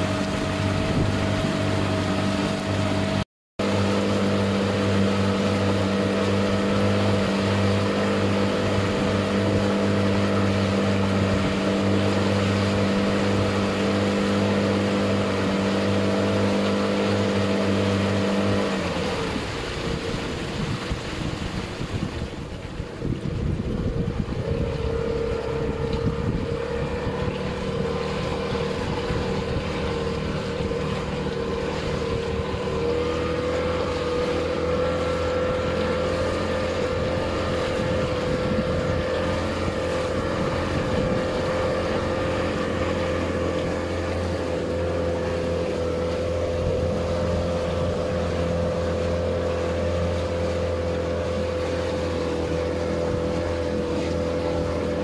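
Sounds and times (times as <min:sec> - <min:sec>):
wind noise on microphone: 0:00.0 - 0:03.2, 0:15.6 - 0:43.9, 0:44.6 - 0:48.9
motorboat engine running: 0:00.0 - 0:55.0.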